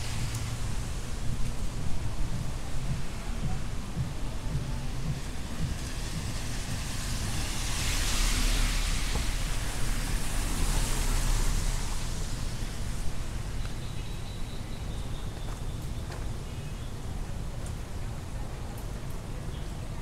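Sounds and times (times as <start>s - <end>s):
low traffic rumble: 0.0s - 20.0s
vehicle passing close by: 4.7s - 13.3s.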